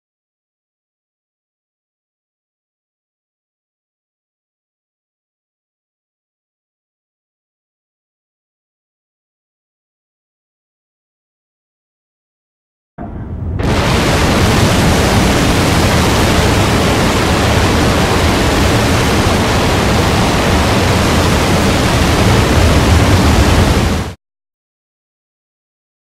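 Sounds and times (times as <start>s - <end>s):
loud rushing hiss: 13.6s - 24.2s.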